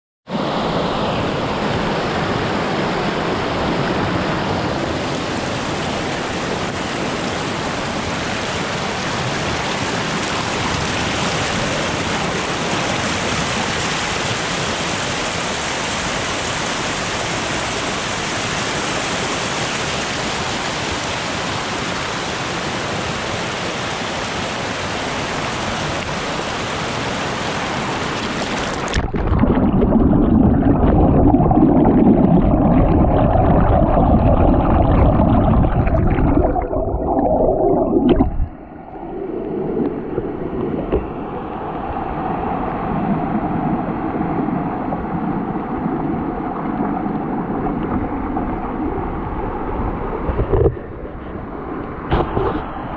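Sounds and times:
deep water rumble: 0.4 - 52.9
stream rushing over rocks: 0.6 - 29.8.

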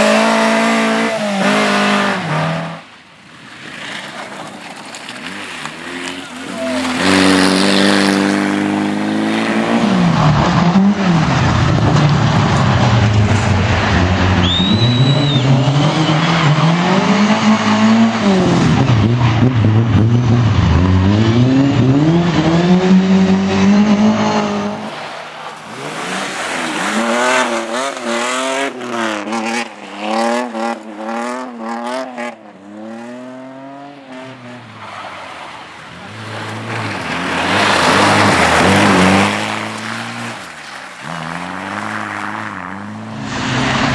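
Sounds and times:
distant car revving: 0.0 - 2.9, 3.7 - 43.9
rally car engine revving: 0.0 - 2.9, 5.0 - 25.1, 25.7 - 43.9
tyre squeal: 6.0 - 7.8, 14.4 - 16.6.

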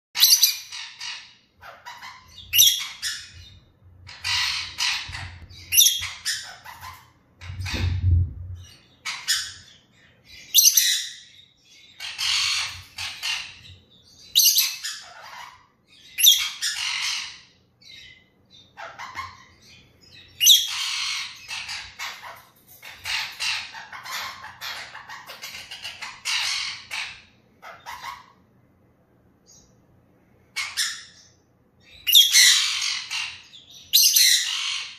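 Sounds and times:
lovebird squawking: 0.2 - 7.8, 18.7 - 19.8, 20.4 - 28.4, 32.0 - 34.9.

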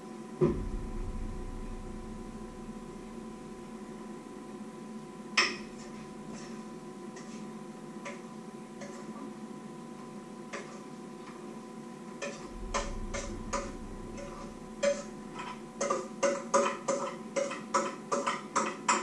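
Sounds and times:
steady electrical hum: 0.0 - 18.1
kitchen clicks and taps: 16.6 - 19.0.

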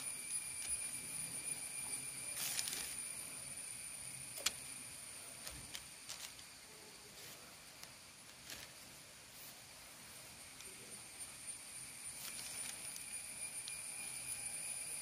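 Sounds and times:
faint high whine: 0.0 - 15.0
plastic sheet crinkling: 2.4 - 3.0, 5.4 - 6.5, 8.2 - 9.0, 12.2 - 13.0.

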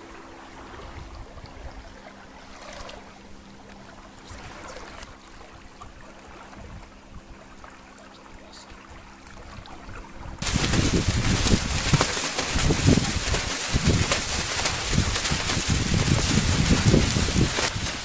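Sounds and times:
water rushing along a hull: 0.0 - 18.0
wind buffeting microphone: 5.6 - 7.5, 9.4 - 18.0.

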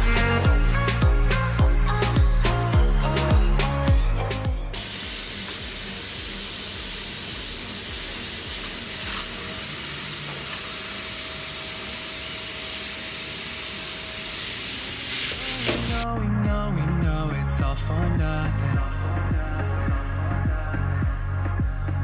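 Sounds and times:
vacuum hissing: 4.8 - 16.0.

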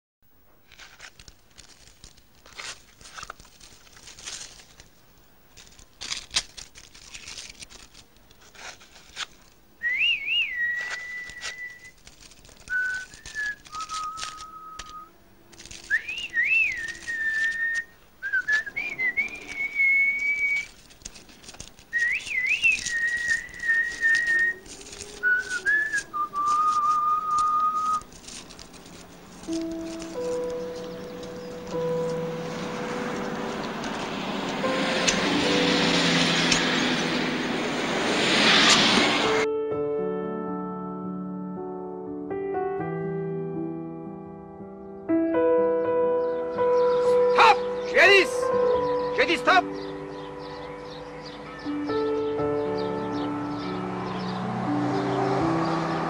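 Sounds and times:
paper and tobacco rustling: 0.5 - 37.3
person whistling a tune: 9.8 - 11.9, 12.7 - 15.1, 15.9 - 20.7, 22.0 - 24.6, 25.2 - 28.0.

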